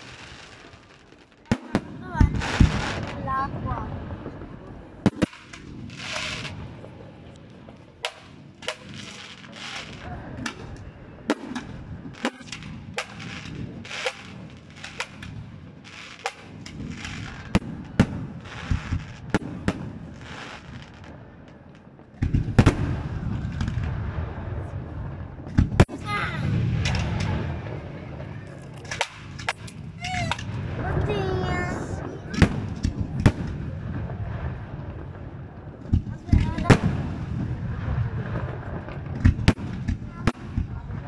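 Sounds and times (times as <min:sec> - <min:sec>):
fireworks bangs: 0:00.0 - 0:41.0
heavy low rumble: 0:01.8 - 0:05.9, 0:22.4 - 0:39.2.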